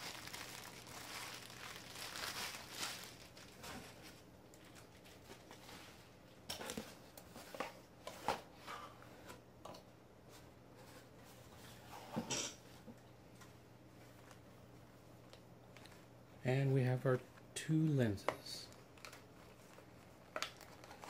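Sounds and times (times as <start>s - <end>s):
bubble wrap crinkling: 0.0s - 5.6s, 18.7s - 21.0s.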